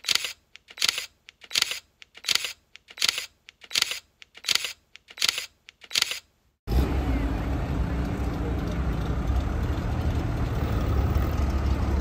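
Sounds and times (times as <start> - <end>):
camera shutter clicking: 0.0 - 6.3.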